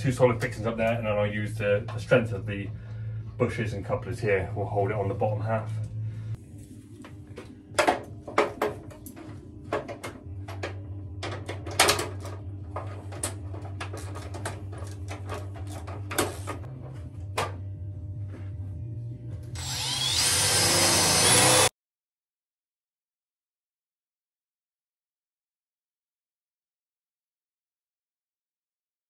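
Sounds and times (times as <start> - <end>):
cordless drill whining: 19.6 - 21.7.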